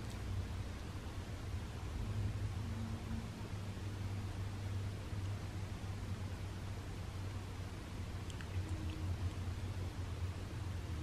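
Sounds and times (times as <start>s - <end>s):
low hum: 0.0s - 11.0s.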